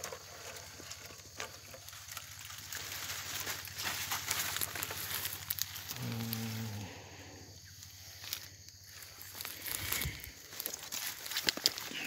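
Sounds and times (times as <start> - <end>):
leaves rustling: 0.0 - 12.0
twigs crackling and snapping: 1.0 - 6.7, 8.1 - 12.0.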